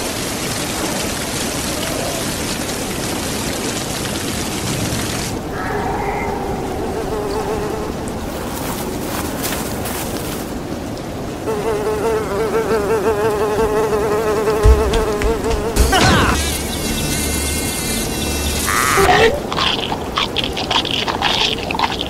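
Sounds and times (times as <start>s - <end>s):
flying insect buzzing: 11.5s - 19.3s
low thump: 14.6s - 16.2s.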